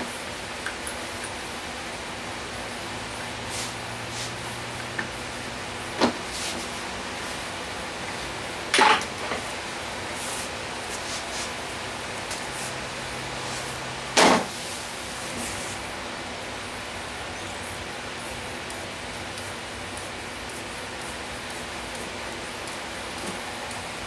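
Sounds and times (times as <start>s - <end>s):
steady hiss: 0.0s - 24.0s
sharp knock: 14.2s - 14.5s.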